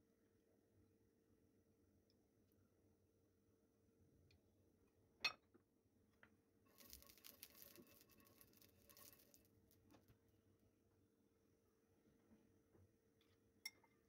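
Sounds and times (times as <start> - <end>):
oil crackling in frying pan: 6.7 - 9.8.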